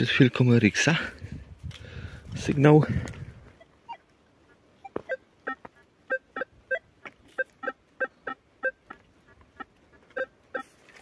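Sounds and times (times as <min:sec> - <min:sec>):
metal detector beeps: 0:04.8 - 0:09.0, 0:10.1 - 0:10.8.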